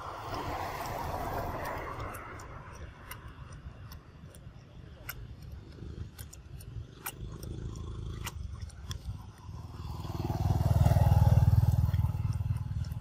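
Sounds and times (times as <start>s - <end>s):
sharp light clicks: 0.1s - 13.0s
motorcycle engine passing by: 7.2s - 13.0s.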